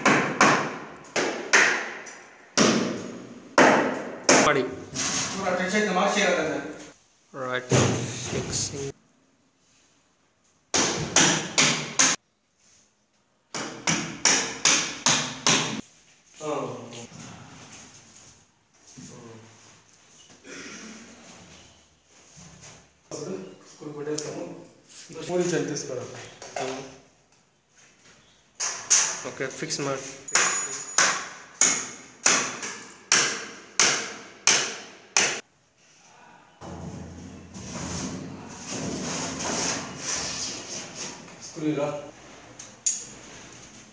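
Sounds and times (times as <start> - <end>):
hammer striking wood: 0.0 - 4.5, 10.7 - 12.2, 13.5 - 15.8, 30.4 - 35.4.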